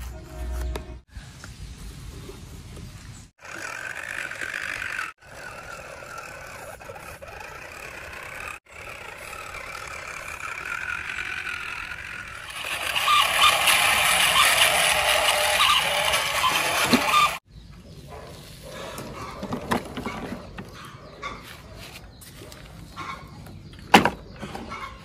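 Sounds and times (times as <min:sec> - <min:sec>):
toy truck motor whining: 0:03.4 - 0:17.5.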